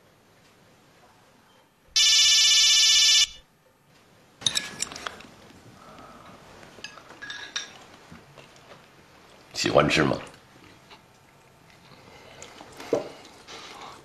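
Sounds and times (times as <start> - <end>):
electronic telephone ringing: 2.0 - 3.4
chopsticks and dishes clattering: 4.4 - 5.2, 6.8 - 7.8.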